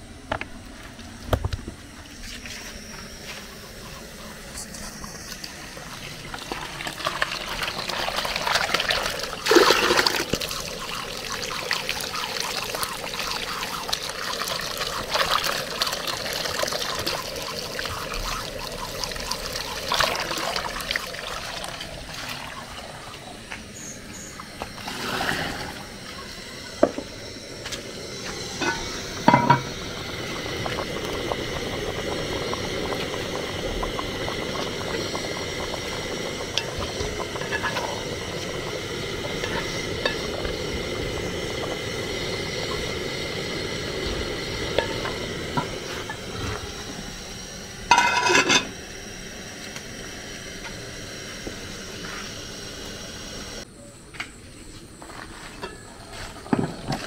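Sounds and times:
water pouring into plastic bowl: 0:06.4 - 0:22.6.

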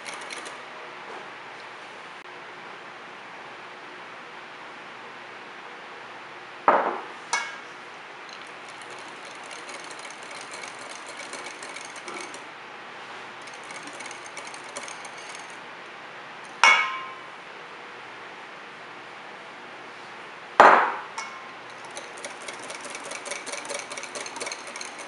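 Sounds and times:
whisk ticking against glass bowl: 0:00.0 - 0:00.6, 0:08.3 - 0:12.4, 0:13.4 - 0:15.6, 0:21.7 - 0:25.0.

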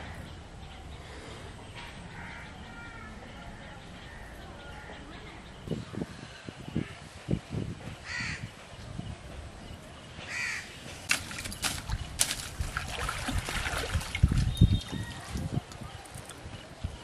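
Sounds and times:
crow cawing: 0:02.1 - 0:03.1, 0:08.0 - 0:08.4, 0:10.3 - 0:10.7.

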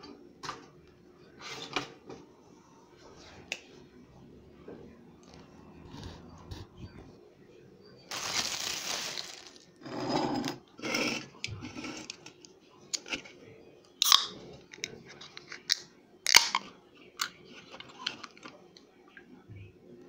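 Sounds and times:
plastic bag crinkling: 0:08.1 - 0:09.8.

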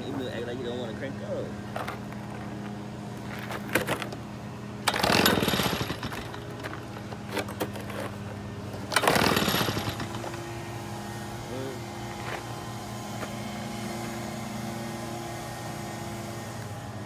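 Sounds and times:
leaf blower engine cranking: 0:04.8 - 0:10.6.

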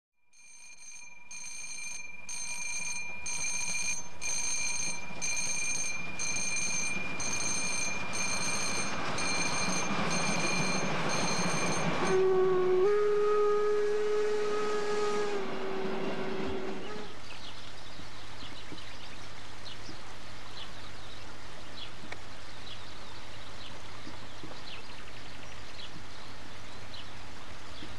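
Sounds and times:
level crossing warning bell: 0:00.3 - 0:12.4
steam locomotive approaching: 0:01.2 - 0:17.3
steam whistle blast: 0:10.8 - 0:17.2.

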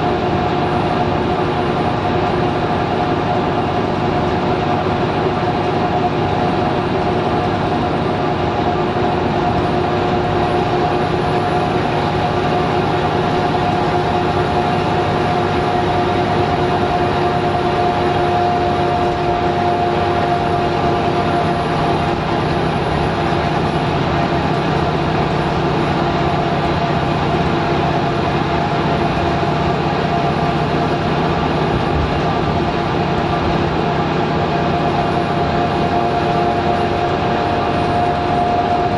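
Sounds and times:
bus diesel engine droning: 0:00.0 - 0:38.9
road and tyre noise: 0:00.0 - 0:38.9
steady whine: 0:00.0 - 0:38.9.

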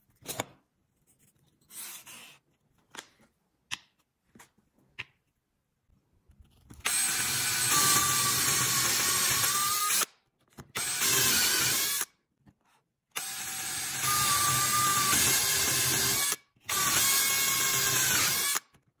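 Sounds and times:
cordless drill boring wood: 0:06.8 - 0:10.1, 0:10.8 - 0:12.1, 0:13.2 - 0:18.7.

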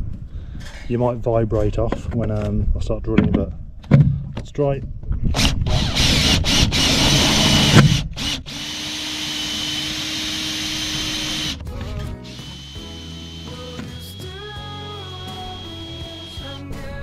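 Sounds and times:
drill driving screw into metal: 0:05.4 - 0:11.6, 0:12.2 - 0:16.6
background music: 0:08.7 - 0:17.0.

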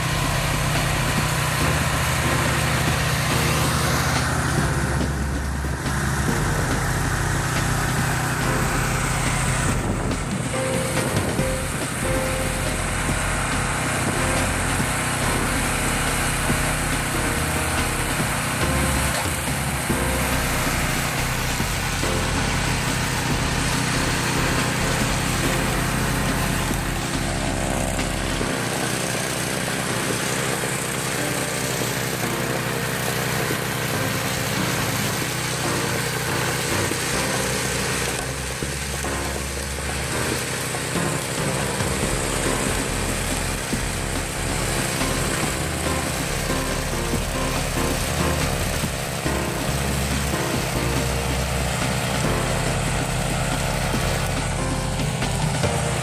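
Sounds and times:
snow thrower engine running: 0:00.0 - 0:56.0.

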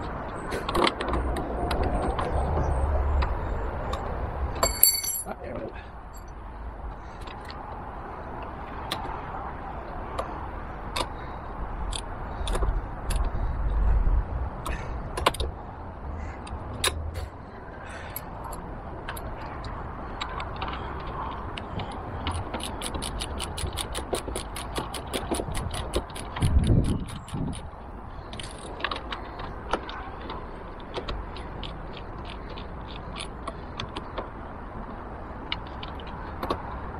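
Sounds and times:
socket ratchet clicking: 0:21.6 - 0:27.7.

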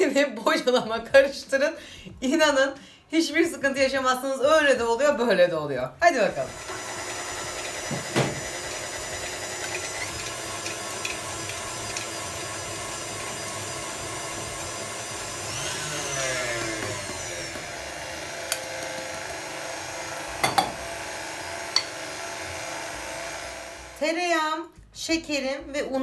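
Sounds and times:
stand mixer motor whine: 0:06.3 - 0:24.0.

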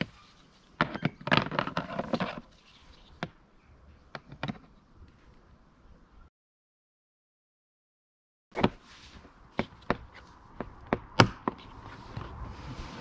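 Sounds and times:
hard plastic parts clicking and knocking: 0:00.8 - 0:02.4, 0:04.1 - 0:04.7.

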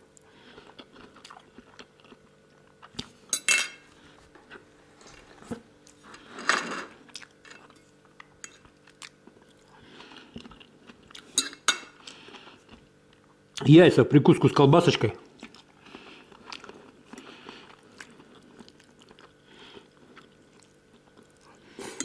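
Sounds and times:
chewing: 0:00.1 - 0:03.3, 0:03.9 - 0:06.3, 0:07.0 - 0:13.6, 0:15.2 - 0:22.0
fork clinking on ceramic plate: 0:03.4 - 0:03.8.

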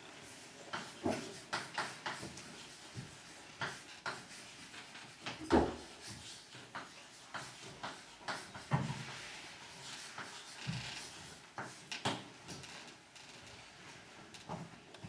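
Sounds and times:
chalk tapping and scratching: 0:00.3 - 0:11.9.

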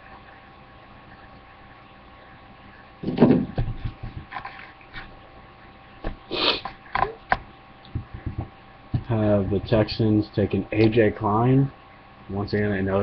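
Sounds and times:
person sniffing: 0:06.3 - 0:06.8
person snorting: 0:06.3 - 0:06.8.

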